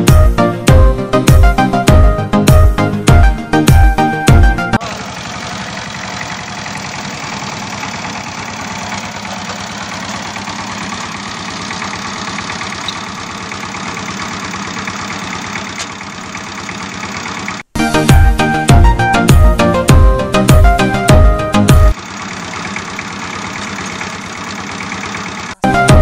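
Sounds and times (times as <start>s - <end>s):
fast even rattle: 4.8s - 17.7s, 22.0s - 25.7s.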